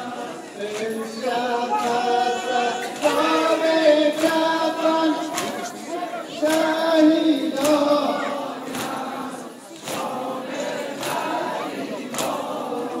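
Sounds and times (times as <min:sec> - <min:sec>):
men chanting a lament: 0:00.0 - 0:13.0.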